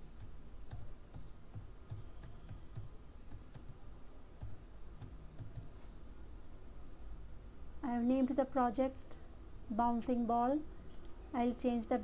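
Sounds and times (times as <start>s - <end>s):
computer keyboard typing: 0.0s - 5.8s.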